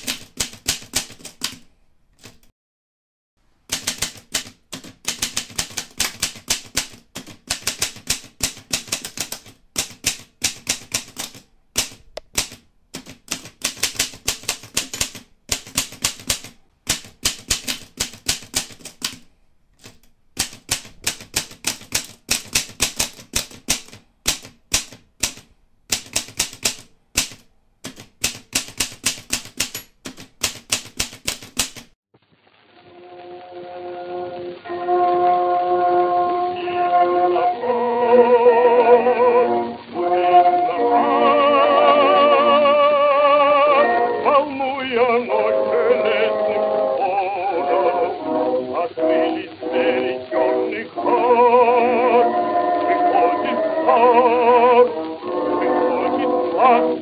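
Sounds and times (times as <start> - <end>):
typewriter keys clacking: 0.0 - 2.5, 3.7 - 32.0.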